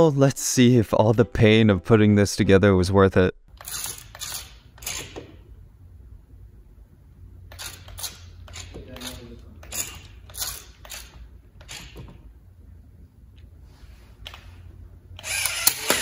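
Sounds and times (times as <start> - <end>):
toy servo motors whirring and clicking: 15.2 - 16.0.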